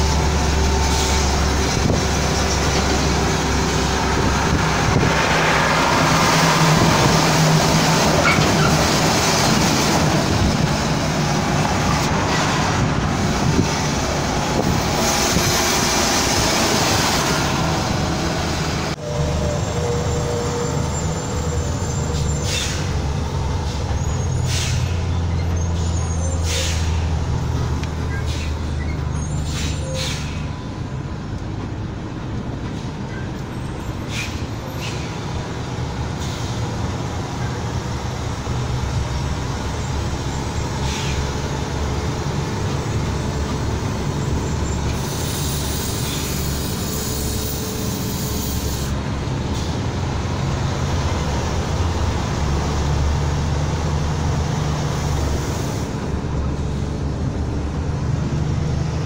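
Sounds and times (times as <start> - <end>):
road noise: 0.0 - 59.0
hiss: 40.8 - 41.2, 44.9 - 49.0.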